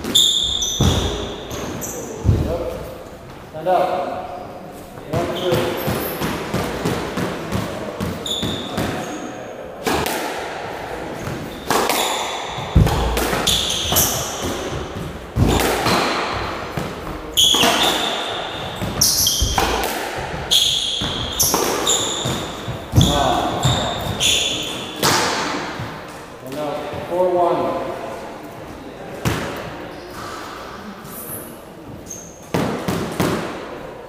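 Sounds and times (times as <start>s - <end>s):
shoes squeaking on wooden floor: 0.0s - 3.3s, 4.9s - 6.3s, 8.0s - 9.3s, 11.2s - 25.1s, 31.0s - 32.6s
squash ball cracks: 9.8s - 23.9s.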